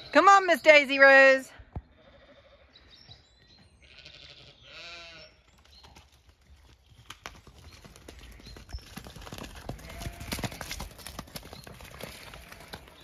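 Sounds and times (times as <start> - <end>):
sheep bleating: 3.8 - 5.3, 9.8 - 10.7
pony hooves trotting on mud: 5.2 - 13.0.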